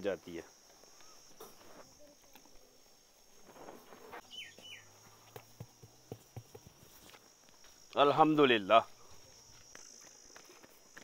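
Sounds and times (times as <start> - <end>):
crickets chirping: 0.0 - 11.0
falling bird chirps: 3.4 - 5.2.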